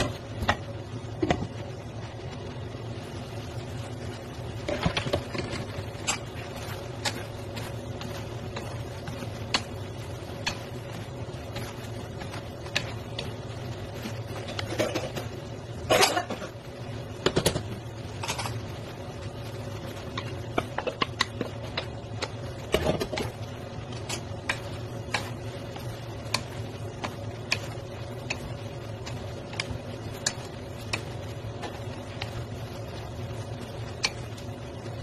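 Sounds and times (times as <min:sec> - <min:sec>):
steady low hum: 0:00.0 - 0:35.0
wooden utensils scraping pan: 0:04.6 - 0:16.2.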